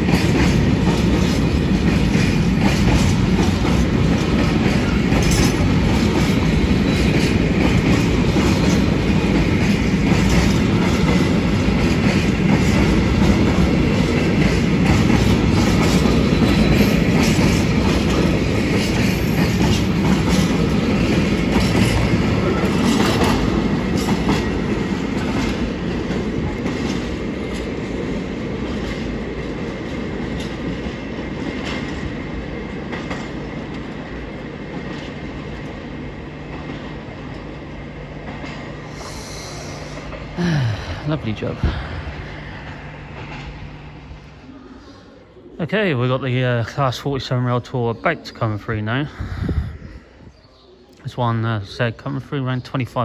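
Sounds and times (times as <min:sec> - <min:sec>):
train wheels clacking over rail joints: 0:00.0 - 0:35.8.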